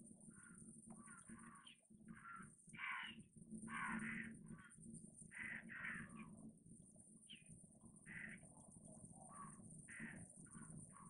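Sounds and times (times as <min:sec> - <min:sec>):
diesel locomotive drone: 0:00.0 - 0:11.0
crows cawing: 0:00.3 - 0:06.3, 0:08.0 - 0:08.5, 0:09.3 - 0:11.0.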